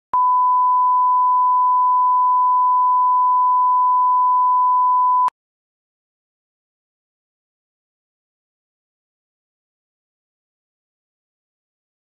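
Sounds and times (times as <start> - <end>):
steady test tone beep: 0.2 - 5.3.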